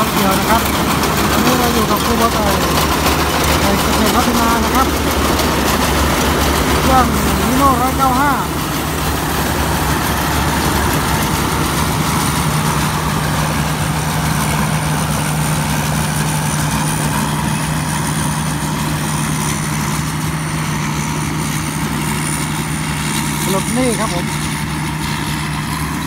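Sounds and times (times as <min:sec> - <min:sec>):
combine harvester engine droning: 0:00.0 - 0:26.0.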